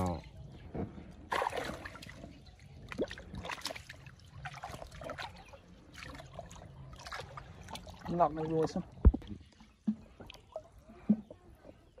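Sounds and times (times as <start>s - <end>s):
water sloshing and trickling: 0.0s - 12.0s
small splashes: 1.2s - 11.3s.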